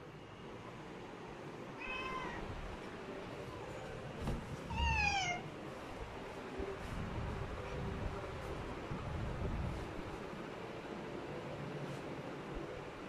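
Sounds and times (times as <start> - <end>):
cat meowing: 1.8 - 2.5, 4.7 - 5.5.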